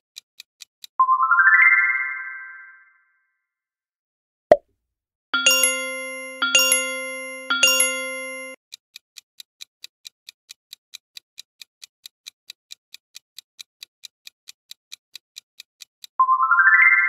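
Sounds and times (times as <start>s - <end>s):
chime ringing: 5.4s - 8.6s
clock-like ticking: 5.4s - 16.2s.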